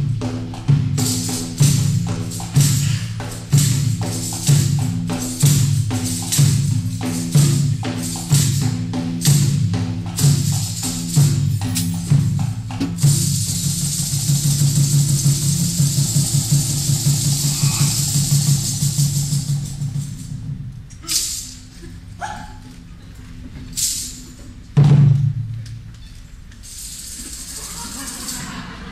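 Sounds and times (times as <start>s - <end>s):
hand drum percussion: 0.0s - 21.5s.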